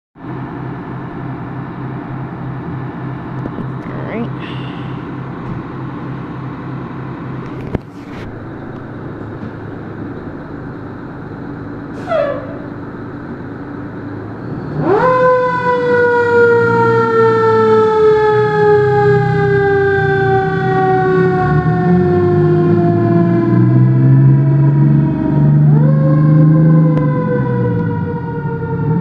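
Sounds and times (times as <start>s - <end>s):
fire engine engine running: 0.2s - 29.0s
siren wailing: 11.9s - 13.2s, 14.2s - 29.0s
siren chirp: 12.0s - 12.9s, 14.4s - 29.0s.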